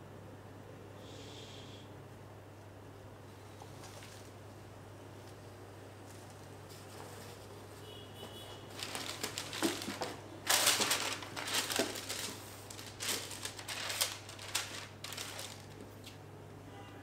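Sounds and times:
tissue paper rustling: 0:08.7 - 0:16.2.

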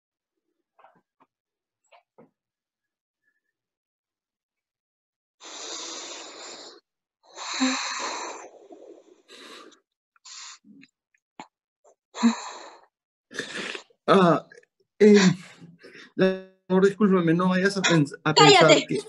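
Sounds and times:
person moaning: 0:18.4 - 0:19.0.

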